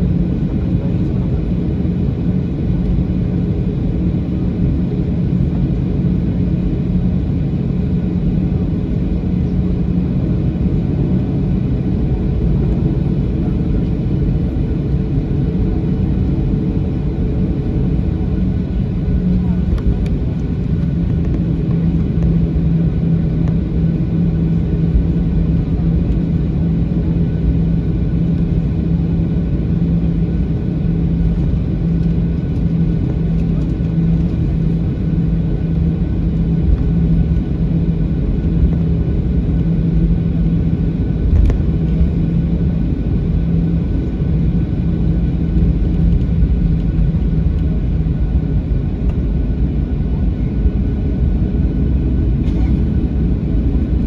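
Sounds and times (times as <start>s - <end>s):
airplane cabin rumble: 0.0s - 54.0s
steady low hum: 0.0s - 54.0s.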